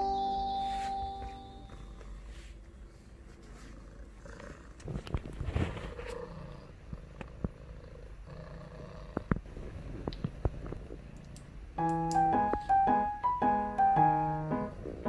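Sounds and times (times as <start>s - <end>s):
cat purring: 3.4s - 11.3s.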